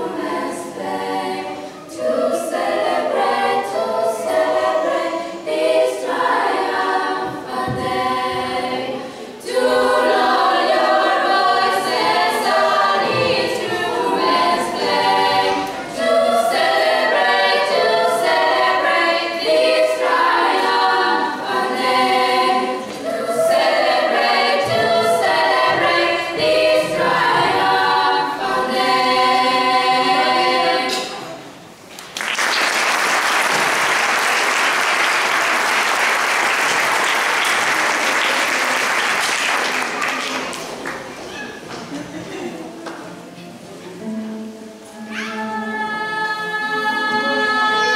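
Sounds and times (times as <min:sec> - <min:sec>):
girls' choir singing a cappella: 0:00.0 - 0:31.8, 0:32.9 - 0:41.1, 0:42.2 - 0:47.9
audience applause: 0:32.0 - 0:41.2.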